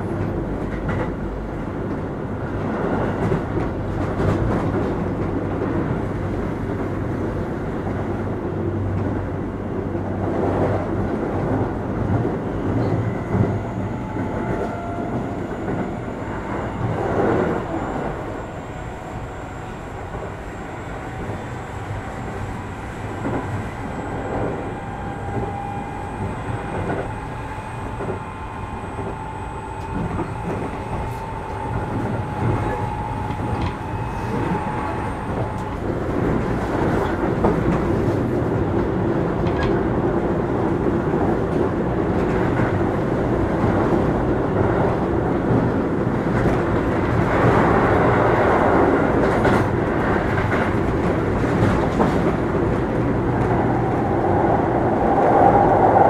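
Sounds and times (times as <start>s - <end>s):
train wheels rumbling over rail joints: 0.0s - 56.0s
electric train motors whining: 12.6s - 37.2s.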